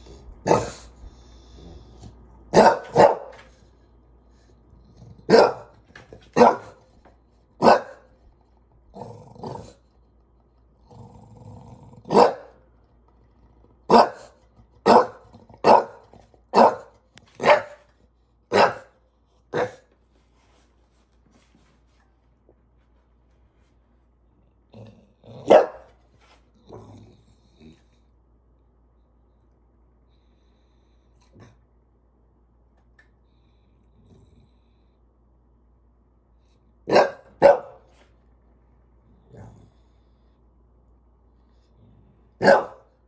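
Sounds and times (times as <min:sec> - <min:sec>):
dog barking: 0:00.4 - 0:00.8, 0:02.5 - 0:03.4, 0:05.3 - 0:05.7, 0:06.3 - 0:06.8, 0:07.6 - 0:08.1, 0:12.1 - 0:12.6, 0:13.9 - 0:17.9, 0:18.5 - 0:19.9, 0:25.4 - 0:25.9, 0:36.9 - 0:37.9, 0:42.4 - 0:42.9
dog growling: 0:08.8 - 0:12.4, 0:24.7 - 0:25.6, 0:26.5 - 0:28.0, 0:39.0 - 0:40.2.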